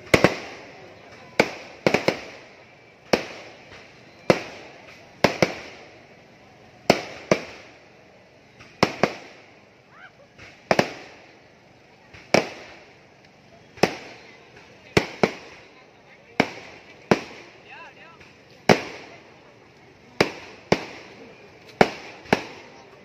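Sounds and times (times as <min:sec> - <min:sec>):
fireworks bursting with echo: 0:00.0 - 0:23.0.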